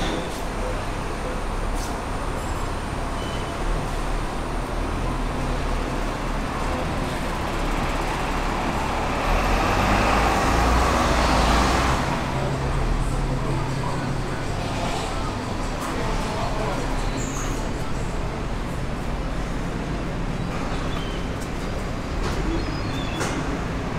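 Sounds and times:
city traffic rumble: 0.0 - 23.9
vehicle passing: 8.7 - 12.4.

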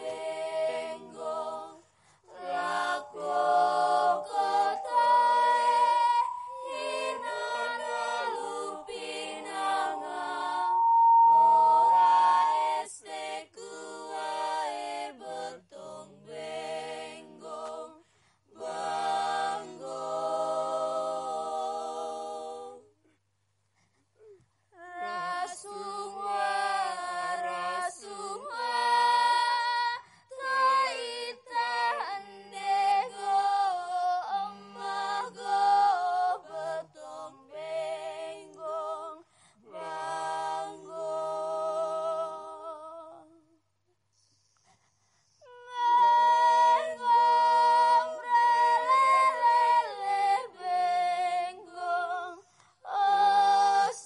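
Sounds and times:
voices singing unaccompanied: 0.0 - 23.0, 24.8 - 43.5, 45.4 - 54.0.

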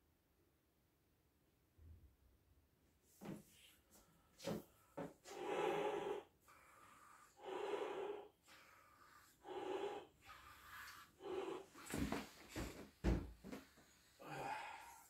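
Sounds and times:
breaths blown into balloon: 4.4 - 12.7
sharp gasps of breath: 14.2 - 15.0.

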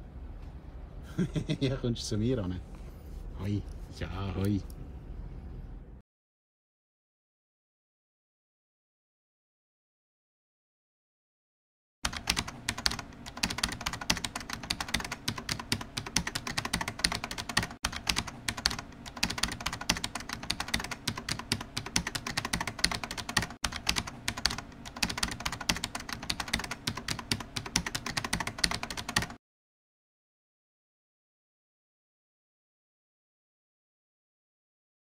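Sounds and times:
computer keyboard typing: 12.0 - 29.4.

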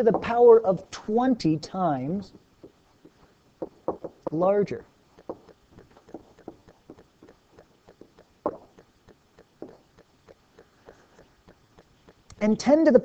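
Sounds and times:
stylus tapping on tablet: 2.3 - 12.4.

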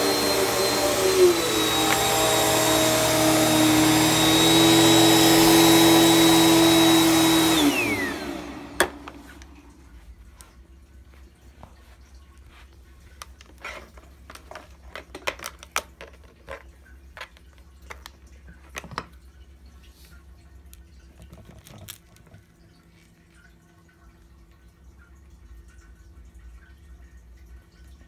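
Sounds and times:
plastic clicks and knocks: 14.2 - 19.2.

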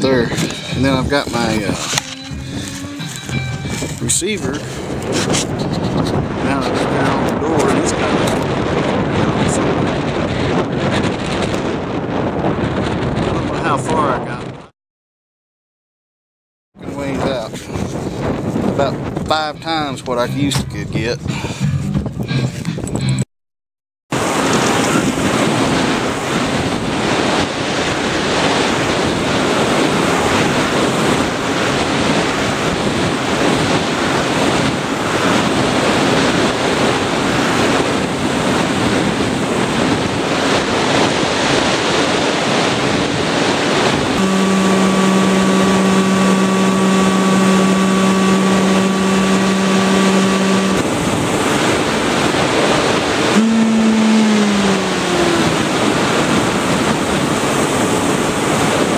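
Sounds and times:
rushing wind noise: 0.0 - 14.7, 16.8 - 23.2, 24.2 - 58.9
electric motor whine: 44.1 - 51.0, 53.3 - 56.4.

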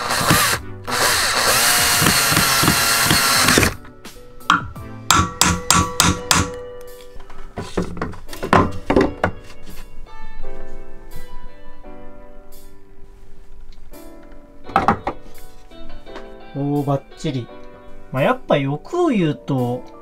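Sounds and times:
power drill running: 0.0 - 3.8
sharp knocks: 4.5 - 6.6.

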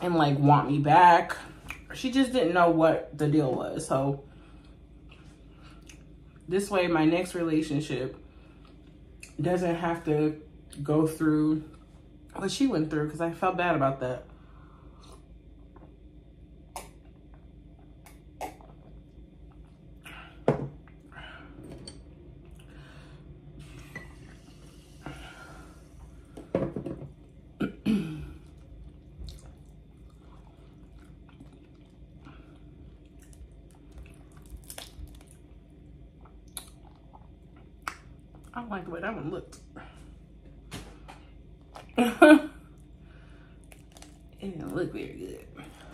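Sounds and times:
wet eating clicks and smacks: 33.0 - 35.5, 36.2 - 38.5, 43.6 - 44.4.

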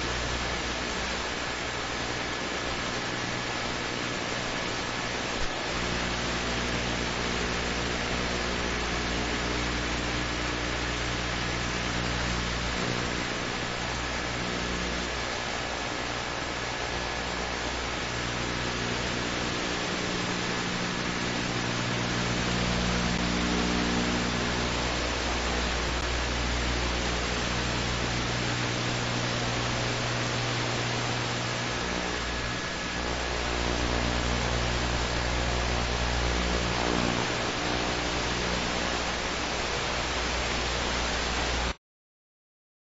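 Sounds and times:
helicopter engine and rotors: 9.7 - 40.2.

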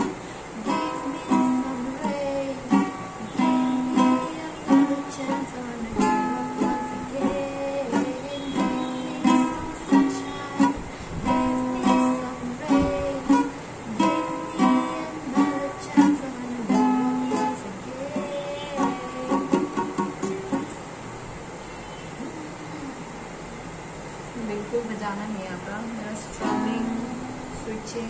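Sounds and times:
woman singing: 0.0 - 20.7, 25.8 - 28.0
ukulele strumming: 0.0 - 20.9, 26.4 - 27.5.

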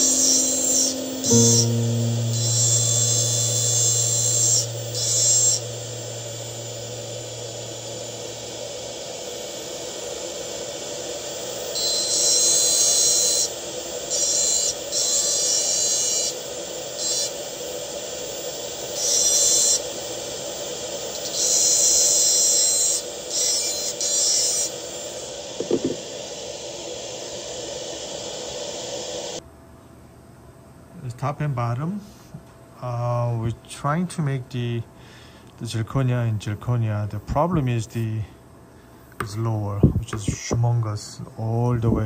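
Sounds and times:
dental handpiece grinding metal: 0.0 - 7.6.

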